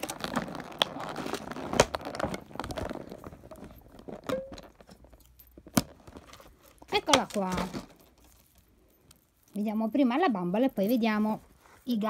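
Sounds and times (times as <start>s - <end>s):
faint rustling: 4.8s - 12.0s.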